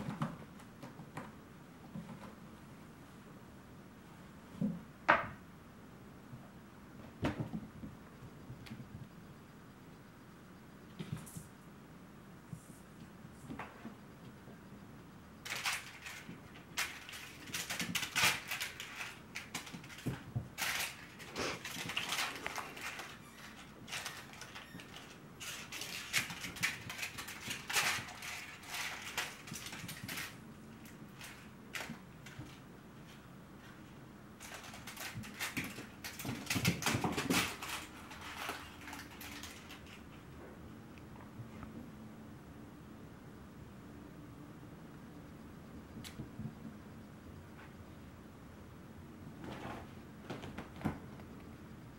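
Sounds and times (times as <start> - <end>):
crinkle toy rustling: 15.4 - 40.2.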